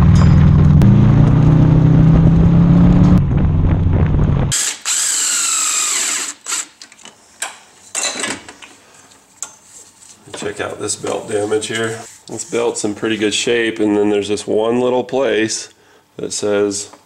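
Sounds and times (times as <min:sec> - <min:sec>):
tyre and wind rumble: 0:00.0 - 0:04.6
car engine drone: 0:00.0 - 0:06.0
cordless power tool whirring: 0:04.5 - 0:06.8.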